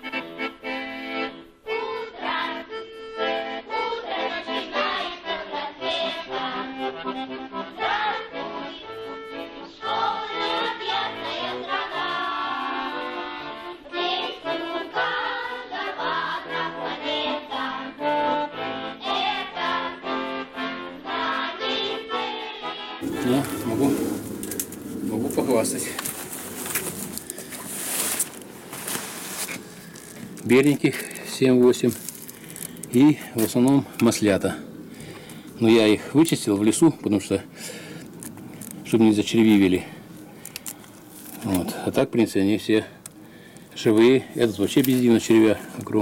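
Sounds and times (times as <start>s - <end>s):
lively accordion tune: 0.0s - 33.7s.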